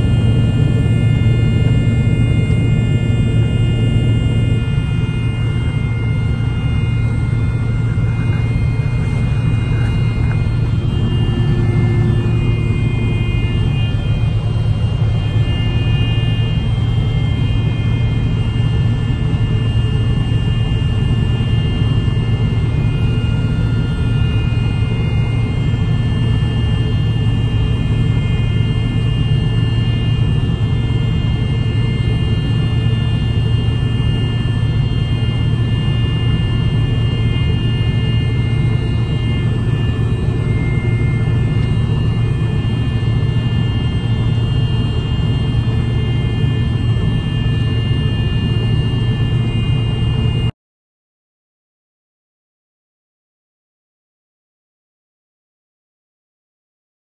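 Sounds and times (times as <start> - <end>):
combine harvester low drone: 0.0 - 50.5
faint high-pitched whines: 0.0 - 50.5.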